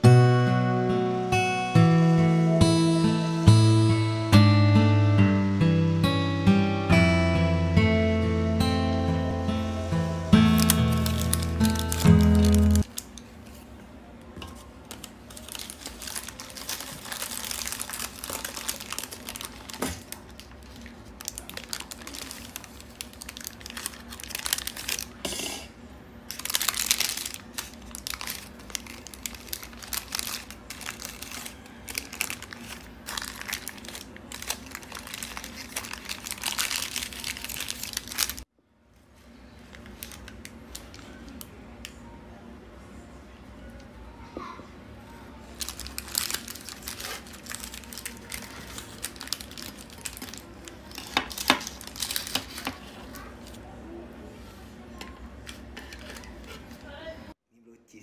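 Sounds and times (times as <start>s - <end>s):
baking paper crinkling: 10.3s - 13.8s, 14.6s - 25.5s, 26.2s - 38.5s, 39.2s - 41.5s, 45.5s - 53.8s, 55.3s - 57.2s.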